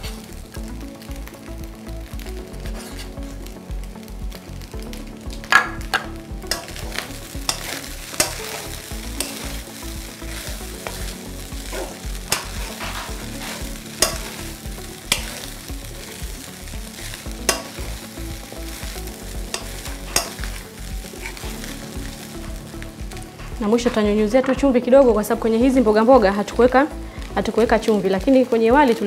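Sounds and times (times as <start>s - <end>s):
rice sizzling in a frying pan: 0.0s - 29.0s
spatula scraping a pan: 2.6s - 3.4s, 6.5s - 9.6s, 10.2s - 16.1s, 19.5s - 21.8s.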